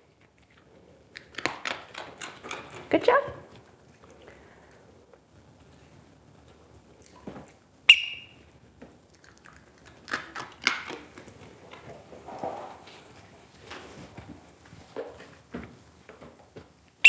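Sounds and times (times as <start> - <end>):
rustling: 8.9 - 17.0.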